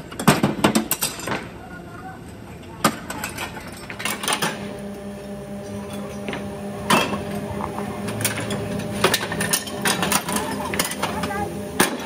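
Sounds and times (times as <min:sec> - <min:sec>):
machinery humming: 0:03.8 - 0:12.0.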